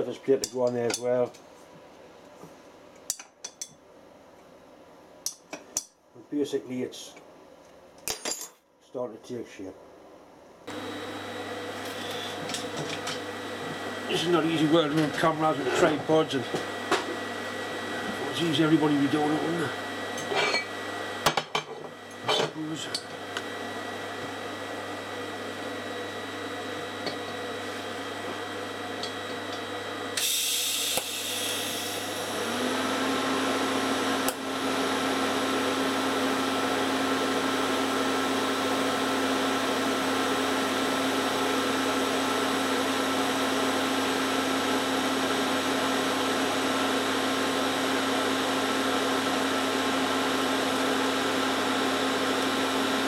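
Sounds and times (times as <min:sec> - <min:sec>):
gas hiss: 0:30.2 - 0:32.2.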